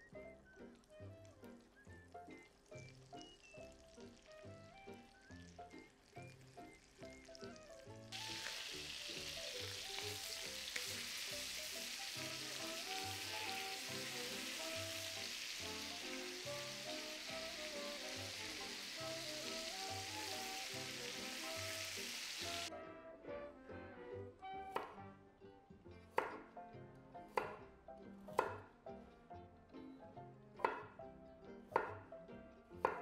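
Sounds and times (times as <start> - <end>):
chicken sizzling in oil: 0.0 - 22.7.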